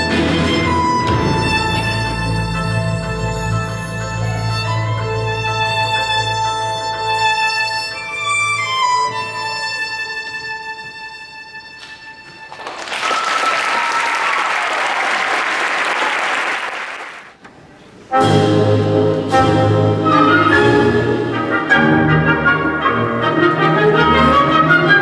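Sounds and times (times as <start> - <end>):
loud orchestral music: 0.0 - 10.7, 18.1 - 25.0
slow instrumental music: 0.0 - 12.6, 18.1 - 25.0
audience applauding: 12.5 - 17.4.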